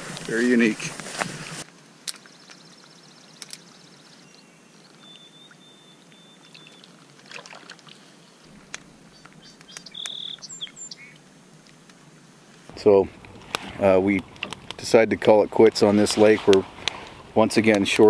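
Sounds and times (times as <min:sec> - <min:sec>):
faint steady hiss: 0:00.0 - 0:18.0
bird chirps and whistles: 0:04.2 - 0:06.8, 0:09.4 - 0:11.2.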